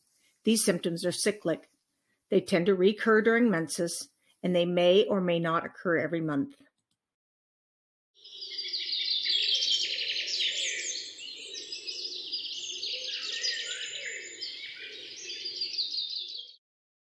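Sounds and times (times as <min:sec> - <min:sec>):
birds chirping in chorus: 0:08.2 - 0:16.6.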